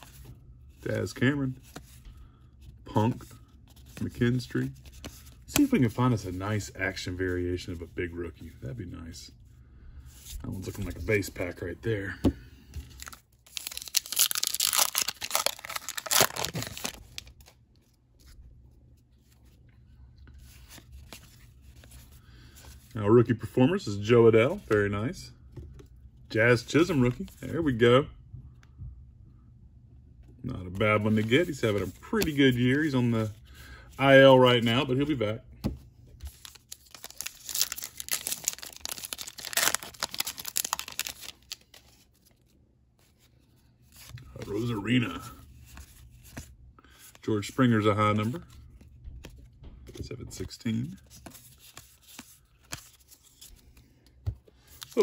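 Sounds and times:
cards rustling: 0.0 - 8.6, 10.1 - 25.0, 30.5 - 33.4, 34.0 - 55.0
wrapper tearing and crinkling: 13.0 - 17.5, 36.4 - 41.8.

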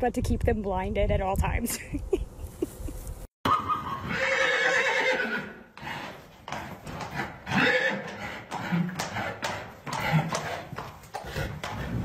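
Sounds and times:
horse neighing: 3.5 - 6.2, 7.1 - 9.4
hooves clip-clopping on hard floor: 5.8 - 12.0.

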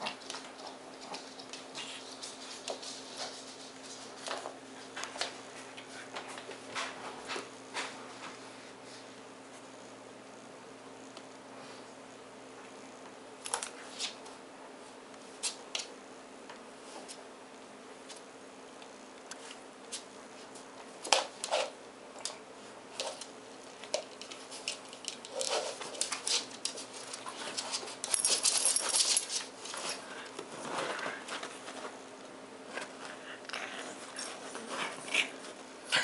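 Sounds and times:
dog paws scrabbling: 0.0 - 8.4, 19.3 - 33.1.

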